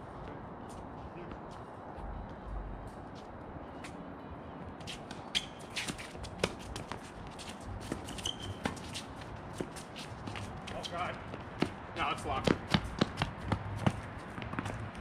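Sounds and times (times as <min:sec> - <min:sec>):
shoes scuffing on court: 0:04.8 - 0:15.0
tennis ball bouncing: 0:05.3 - 0:10.5.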